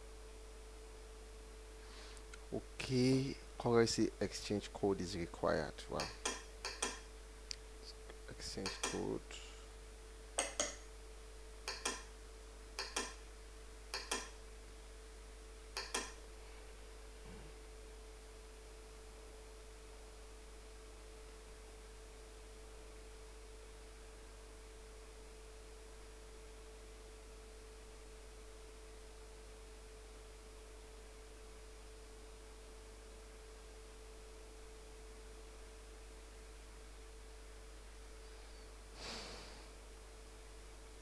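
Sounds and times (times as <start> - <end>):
low hiss: 0.0 - 20.3
faint electrical hum: 0.0 - 41.0.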